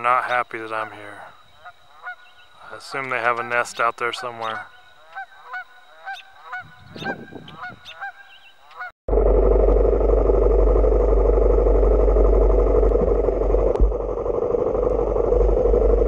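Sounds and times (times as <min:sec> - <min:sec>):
geese honking: 0:00.6 - 0:08.9.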